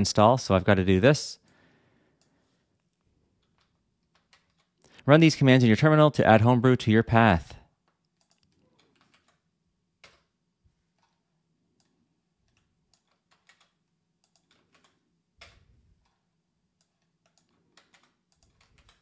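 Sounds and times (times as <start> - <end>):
computer keyboard keystrokes: 3.4 - 4.9, 7.8 - 9.4, 10.0 - 10.3, 11.8 - 16.2, 16.8 - 19.0.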